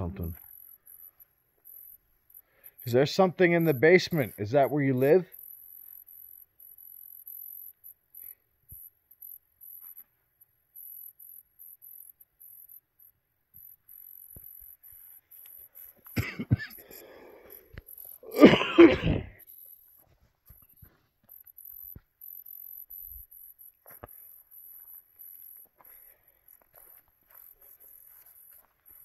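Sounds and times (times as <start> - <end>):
crickets chirping: 0.0 - 29.0
person coughing: 16.2 - 16.9, 18.2 - 19.4.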